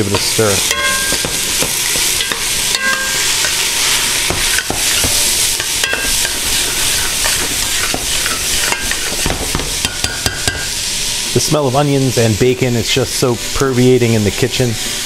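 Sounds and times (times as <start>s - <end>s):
food sizzling in hot oil: 0.0s - 15.0s
metal spoon scraping a pot: 0.1s - 10.7s.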